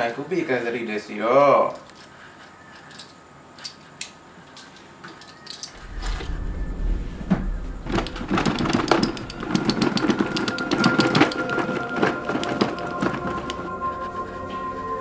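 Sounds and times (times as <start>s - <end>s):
low rumble: 5.7s - 10.7s
dense clattering: 5.8s - 13.3s.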